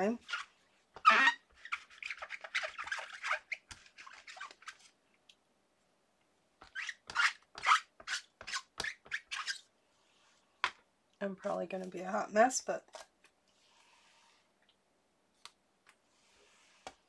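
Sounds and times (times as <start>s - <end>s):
scratchy rubbing strokes on paper: 0.2s - 5.0s, 16.1s - 17.0s.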